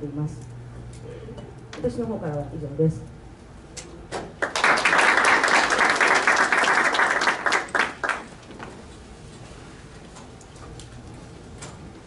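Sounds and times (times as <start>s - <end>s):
audience applauding: 4.4s - 8.4s.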